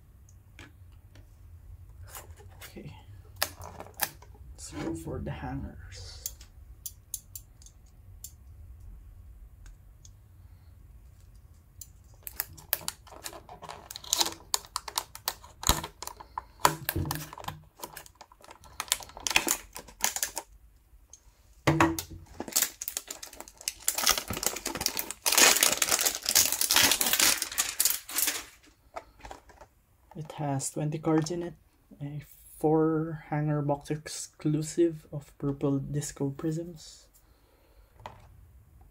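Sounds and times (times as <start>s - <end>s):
packaging rustling and tearing: 12.1s - 20.5s, 22.2s - 29.6s.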